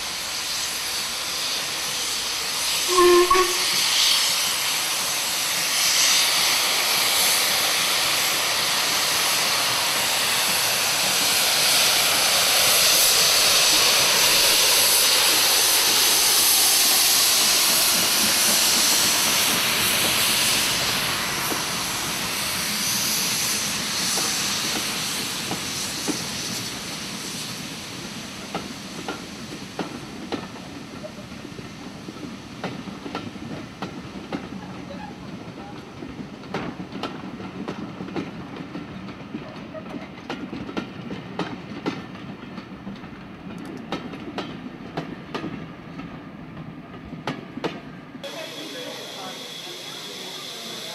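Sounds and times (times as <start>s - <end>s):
steam hissing: 0.0s - 42.3s, 47.5s - 50.9s
train wheels clicking over rail joints: 7.8s - 48.0s.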